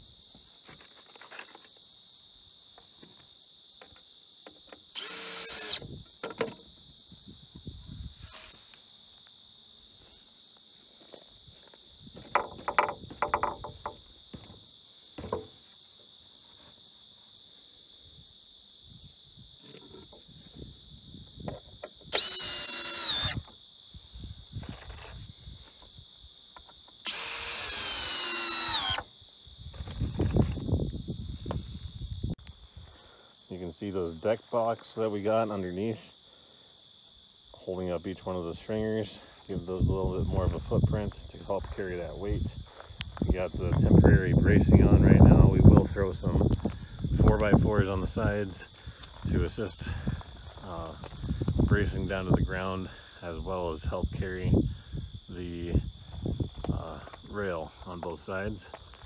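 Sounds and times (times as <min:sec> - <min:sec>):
cordless drill driving a screw: 0:05.0 - 0:05.8, 0:22.1 - 0:23.4, 0:27.0 - 0:29.0
knocks from handling boards: 0:12.2 - 0:14.6.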